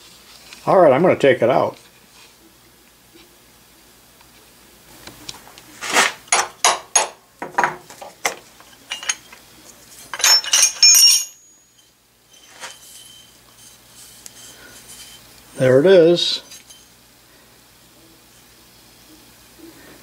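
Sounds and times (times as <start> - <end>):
ringing metal clinks: 10.1 - 13.4.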